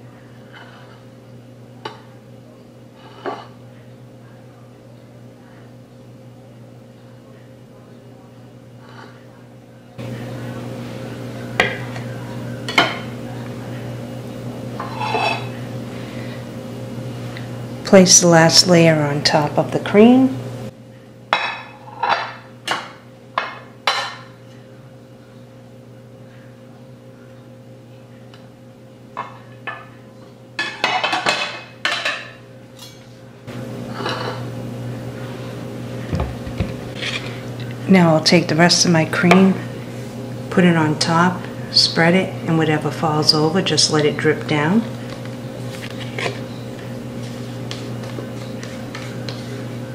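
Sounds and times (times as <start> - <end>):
dishes and utensils clattering: 14.8 - 15.6, 30.6 - 33.1.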